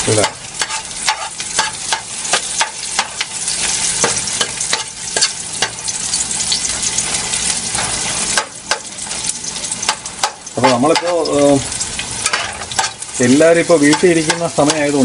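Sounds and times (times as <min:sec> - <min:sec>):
onions sizzling in hot oil: 0:00.0 - 0:15.0
spoon scraping a pot: 0:00.6 - 0:02.0.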